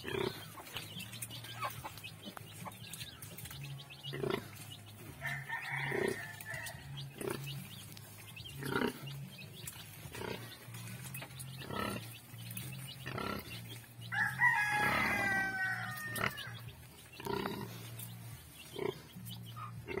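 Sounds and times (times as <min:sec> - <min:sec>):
sow grunting: 0:08.5 - 0:09.2, 0:17.2 - 0:18.0
rooster crowing: 0:14.1 - 0:16.6.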